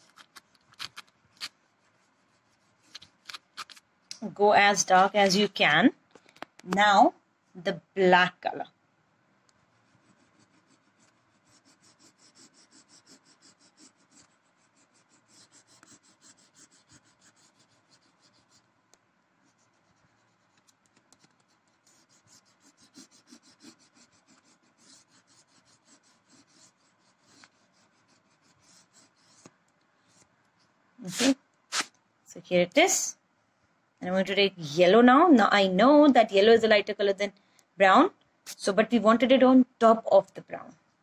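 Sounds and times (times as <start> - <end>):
crayon scratching on paper: 0.0 - 3.8, 9.6 - 18.8, 19.4 - 30.3, 31.0 - 31.9.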